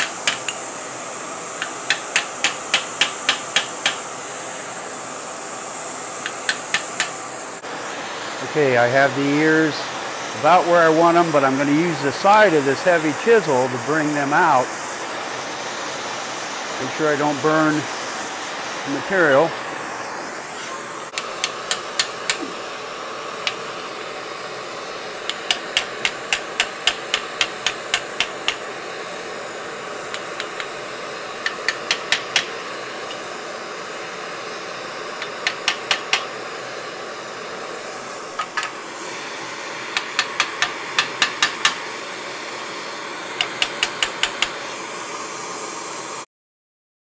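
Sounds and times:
hammer striking chisel on metal: 0.0 - 0.6, 1.6 - 4.0, 6.2 - 7.2, 21.1 - 22.5, 25.3 - 28.6, 31.4 - 32.6, 35.2 - 36.3, 40.0 - 41.8, 43.4 - 44.5
gas torch hissing: 0.0 - 46.2.

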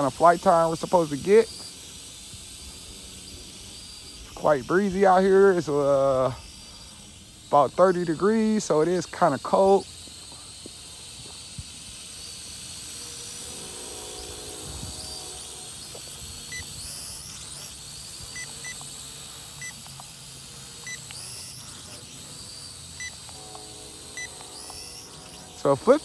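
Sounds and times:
quadcopter motors whining: 0.0 - 26.0
wind on microphone: 14.2 - 15.5
short high electronic beeps: 23.0 - 25.9.

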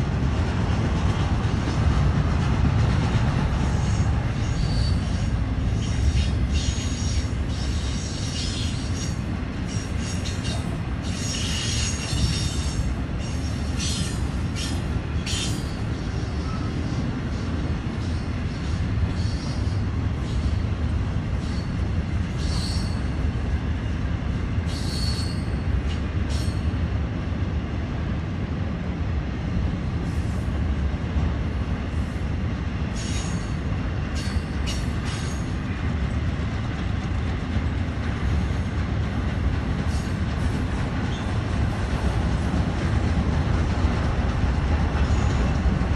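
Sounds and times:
freight train wheels rumbling on rails: 0.0 - 45.9
train wheel squeals: 3.6 - 20.7, 21.3 - 23.3, 24.6 - 26.8, 32.9 - 36.2, 39.8 - 41.5, 44.9 - 45.9.

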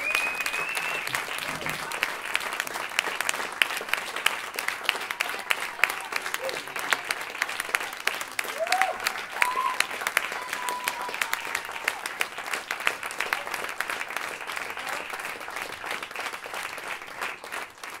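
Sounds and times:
short high whistle: 0.0 - 1.1
audience applauding: 0.0 - 18.0.

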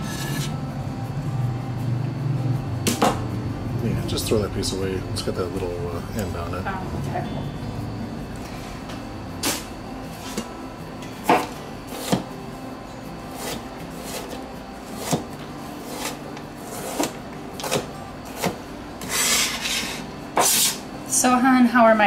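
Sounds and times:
knife scraping across board: 0.0 - 0.6, 13.3 - 20.8.

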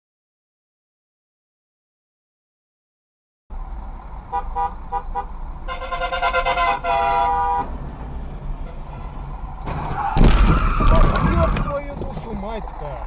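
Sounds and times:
car horn honking: 4.3 - 7.8, 8.6 - 9.3
loud crash: 9.6 - 11.9
debris hitting windshield: 9.6 - 12.4.

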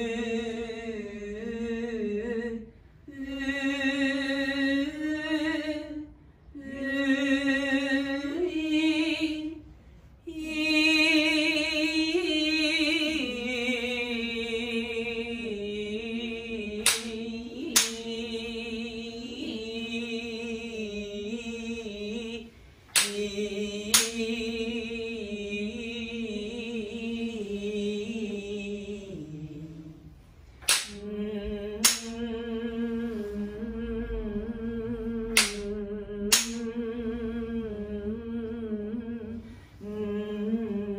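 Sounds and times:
woman singing unaccompanied: 0.0 - 40.9
sharp knocks: 22.9 - 23.2, 30.6 - 31.0.

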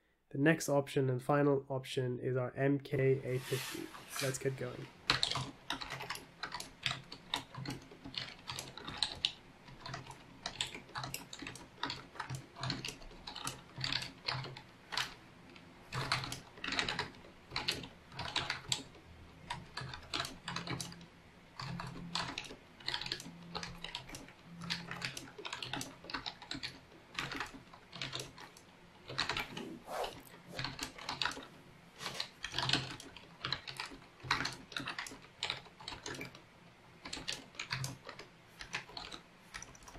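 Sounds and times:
fast keyboard typing: 5.1 - 29.7, 32.1 - 36.4, 37.0 - 39.9.

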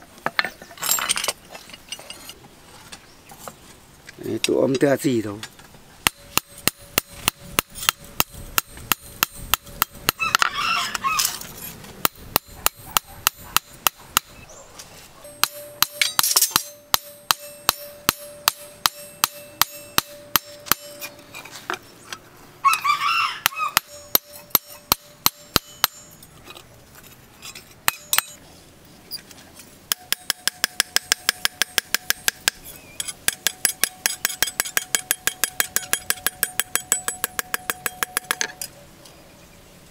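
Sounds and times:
steady metallic ring: 6.0 - 10.2, 15.2 - 21.2, 23.8 - 26.2, 27.4 - 28.4, 29.9 - 38.7
hammer striking blade on anvil: 15.3 - 21.2, 23.8 - 26.2, 27.9 - 28.4, 29.9 - 38.6.

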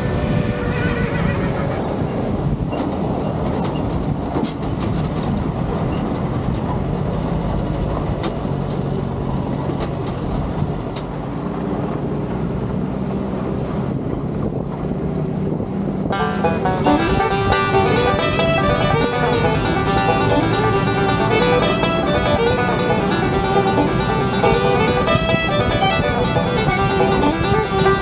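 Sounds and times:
wind on microphone: 0.0 - 7.2, 13.8 - 28.0
jeep engine running: 16.0 - 28.0.

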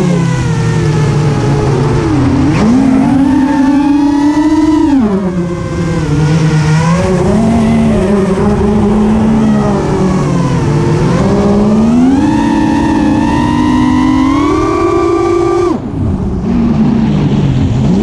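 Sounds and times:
model plane motor whining: 0.0 - 15.8.

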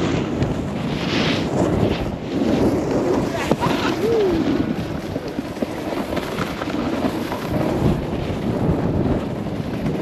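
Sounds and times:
snowboard scraping over snow: 0.0 - 10.0
wind rumble on microphone: 0.0 - 10.0.

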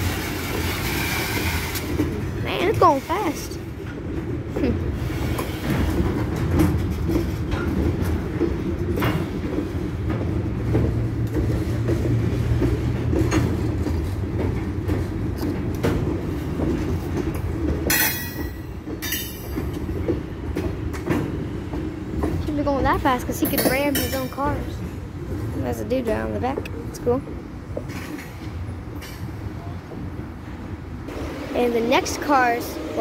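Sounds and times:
freight train rumbling past: 0.0 - 33.0
wheels clicking over rails: 0.0 - 33.0.

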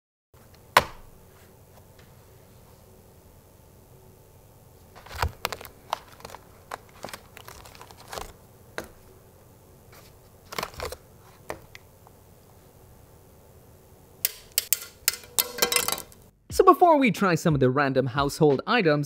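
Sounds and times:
stiff plastic clicks and crinkles: 5.0 - 8.9.

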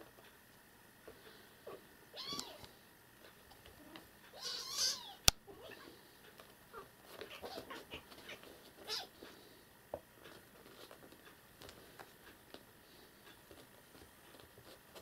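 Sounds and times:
soft rustling: 5.5 - 15.0.

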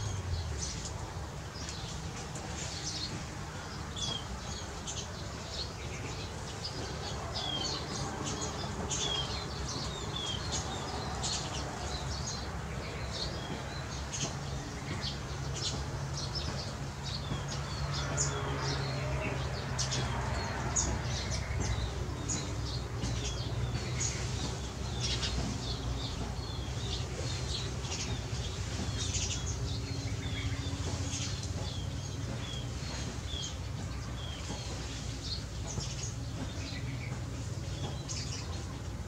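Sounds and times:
small birds chirping: 0.0 - 39.0.

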